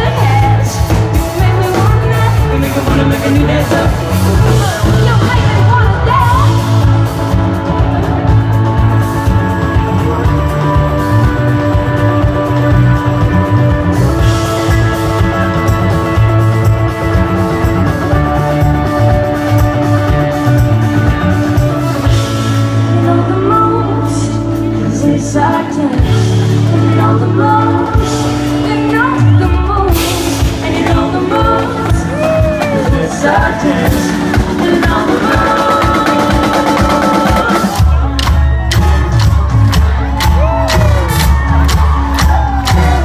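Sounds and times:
audience singing along: 0.0s - 5.4s, 30.3s - 37.8s
live rock band playing: 0.0s - 43.0s.

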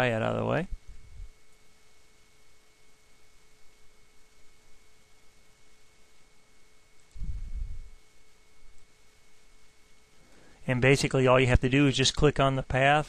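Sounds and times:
faint hiss: 0.0s - 13.0s
thin electrical hum: 0.0s - 13.0s.

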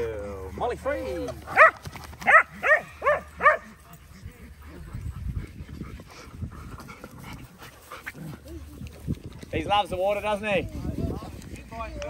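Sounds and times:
dog barking: 1.6s - 3.7s.

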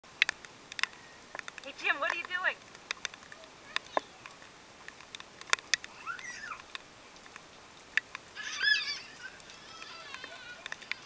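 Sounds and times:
raindrops ticking: 0.0s - 11.0s
toddler squealing: 5.9s - 6.7s, 8.4s - 11.0s.

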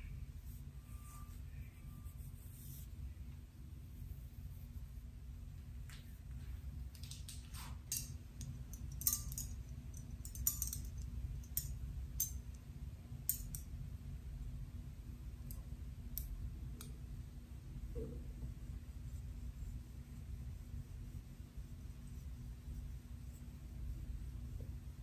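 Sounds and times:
faint low hum: 0.0s - 25.0s.

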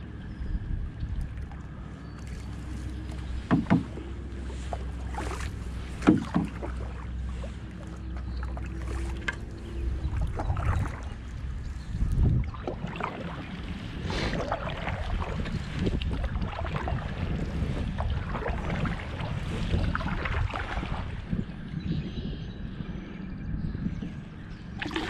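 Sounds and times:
wind rumble on microphone: 0.0s - 25.0s
paddle splashing through water: 1.2s - 21.5s, 24.8s - 25.0s
sharp knocks: 3.5s - 4.0s, 6.0s - 6.6s.

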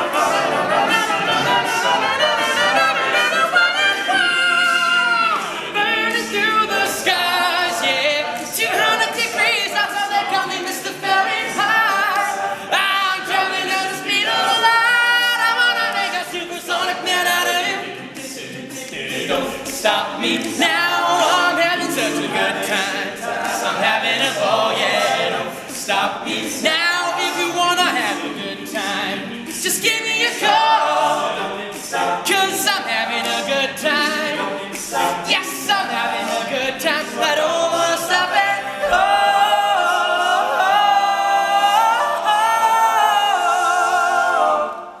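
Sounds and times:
male a cappella group singing: 0.0s - 45.0s.

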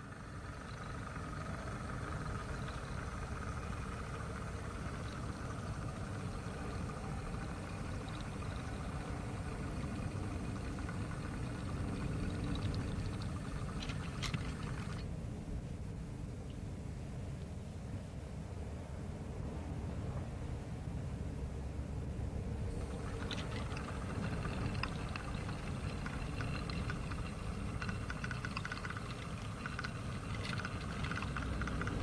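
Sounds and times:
model train wheels rolling: 0.0s - 15.0s, 22.7s - 32.0s.

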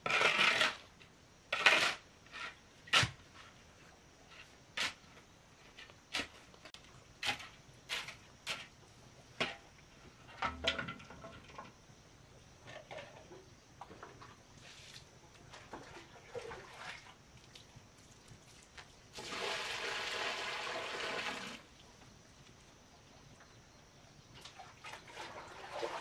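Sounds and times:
shovel scraping cement mix: 0.0s - 0.9s, 1.5s - 3.6s, 4.3s - 6.6s, 7.2s - 8.7s.

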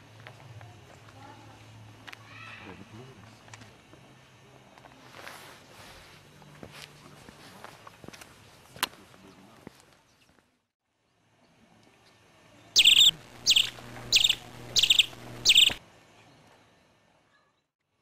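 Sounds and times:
sparrows chirping: 12.8s - 15.8s.

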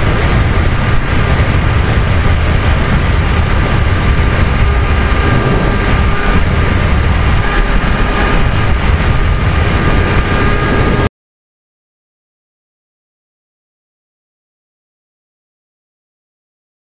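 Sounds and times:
electric motor and propeller whine: 0.0s - 11.1s
wind rush on microphone: 0.0s - 11.1s.

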